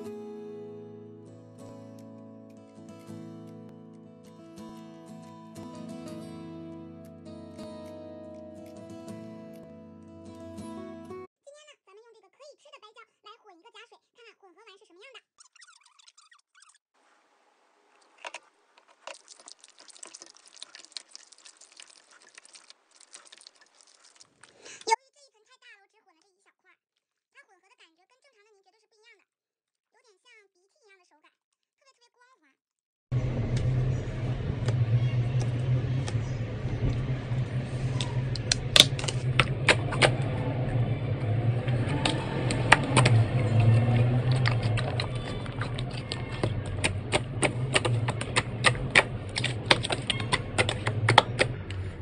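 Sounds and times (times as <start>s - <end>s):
slime stirred by hand: 18.0s - 24.9s, 37.9s - 40.4s, 41.6s - 52.0s
low hum: 33.1s - 52.0s.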